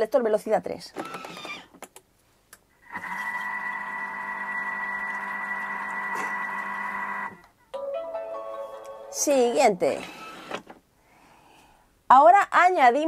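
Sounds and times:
kitchen machine motor whine: 0:02.8 - 0:07.4.

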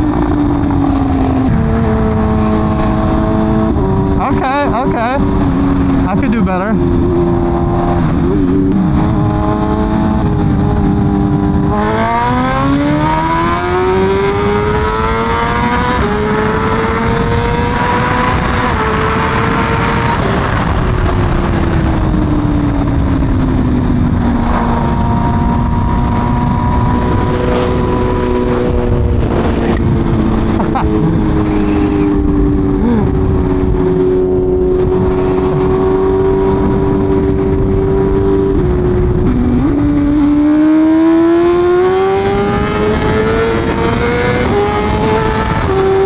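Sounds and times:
motorcycle engine revving: 0:00.0 - 0:46.0.

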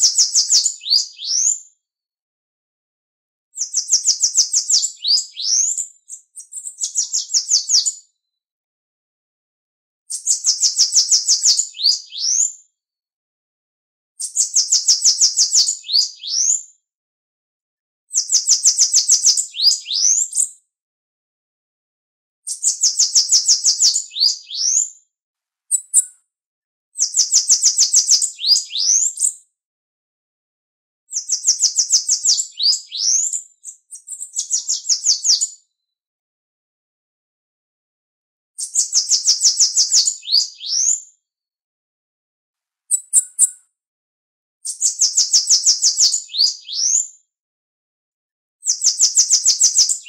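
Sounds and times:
bird singing high trills: 0:00.0 - 0:01.6, 0:42.9 - 0:43.6.

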